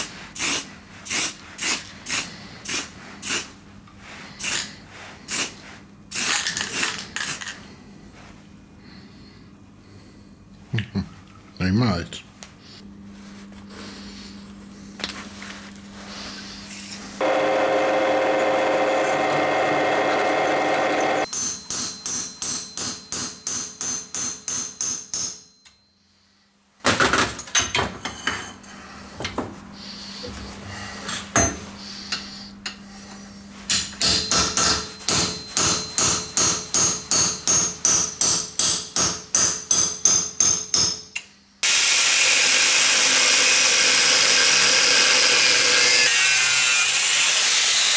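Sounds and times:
angle grinder grinding steel: 17.2s - 21.3s, 41.6s - 47.9s
power tool running: 17.2s - 21.3s, 41.6s - 47.9s
hammer striking steel: 21.0s - 25.7s, 33.7s - 41.2s.

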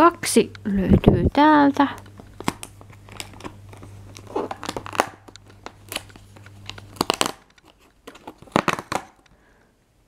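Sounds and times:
cardboard tearing and crinkling: 2.2s - 9.3s.

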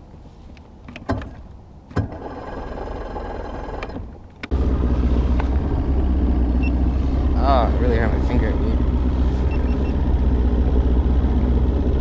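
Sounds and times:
electric starter cranking: 2.0s - 7.4s
outboard motor running: 4.5s - 12.0s.

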